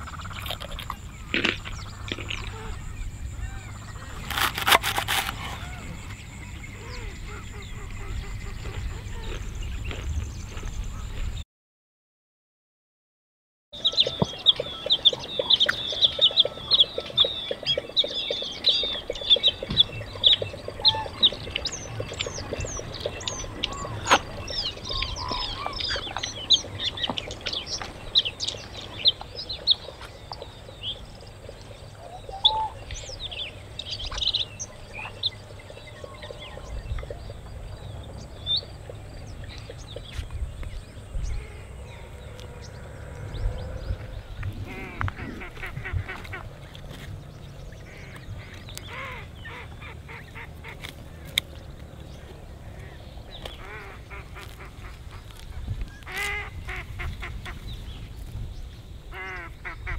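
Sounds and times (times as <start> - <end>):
birds chirping: 0.0 - 11.4, 13.8 - 59.9
low rumble: 32.9 - 48.7.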